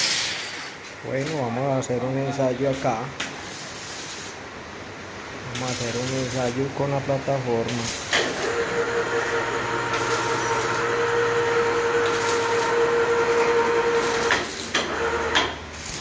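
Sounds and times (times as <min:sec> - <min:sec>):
hoist motor humming with a whine: 0:08.1 - 0:15.6.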